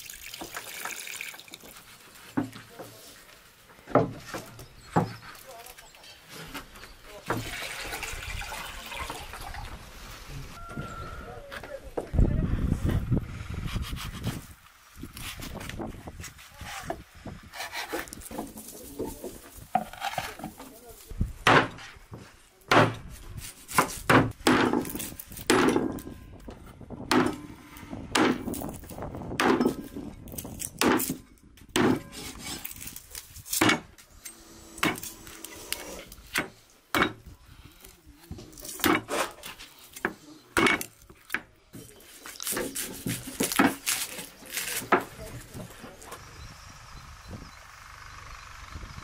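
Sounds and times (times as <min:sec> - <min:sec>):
chopping on wood: 0:21.4 - 0:21.9, 0:22.7 - 0:23.0, 0:23.7 - 0:25.8, 0:27.1 - 0:27.4, 0:28.1 - 0:28.6, 0:29.4 - 0:29.8, 0:30.8 - 0:32.1.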